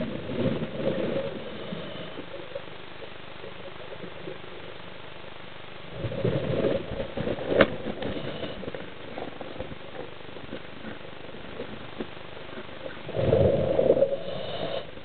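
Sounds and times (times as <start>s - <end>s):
underwater hiss: 0.0s - 2.5s, 5.9s - 8.8s, 13.0s - 15.0s
underwater rumbling and crackle: 0.0s - 15.0s.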